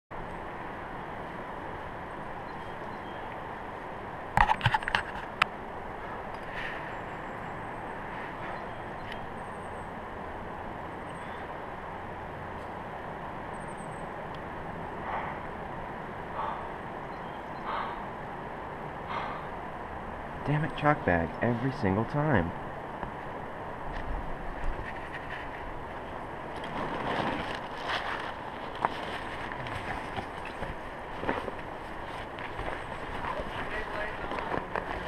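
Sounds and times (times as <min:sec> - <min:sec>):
faint breaths: 0:06.0 - 0:07.1, 0:08.0 - 0:08.7, 0:11.1 - 0:11.7, 0:15.0 - 0:15.6, 0:16.3 - 0:16.9, 0:17.6 - 0:18.2, 0:19.0 - 0:19.6.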